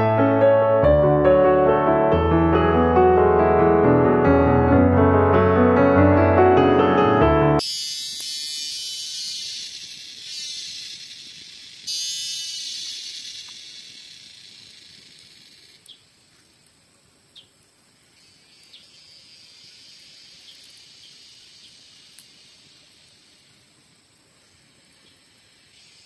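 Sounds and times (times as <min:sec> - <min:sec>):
cicadas buzzing: 0:07.6 - 0:26.0
faint clicks: 0:22.1 - 0:22.3.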